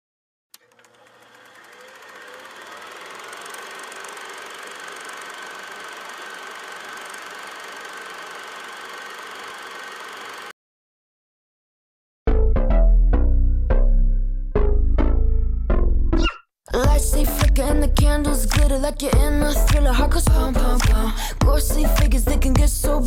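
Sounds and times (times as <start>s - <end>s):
scooter engine running: 0.6s - 10.5s, 16.9s - 22.8s.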